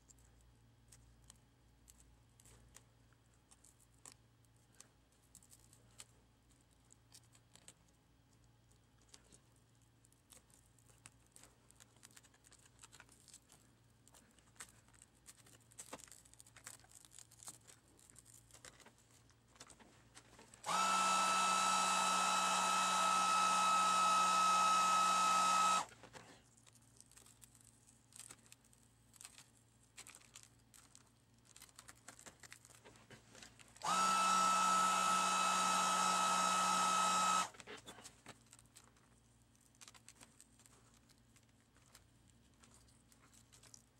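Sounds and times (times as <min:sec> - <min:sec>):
hot-air blower whining rush: 0:20.6 - 0:25.9, 0:33.8 - 0:37.5.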